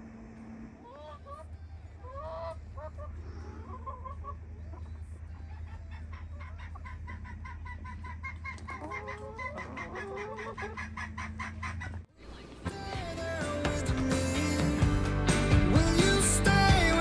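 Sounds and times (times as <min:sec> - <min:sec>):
chickens clucking: 0:00.8 - 0:12.7.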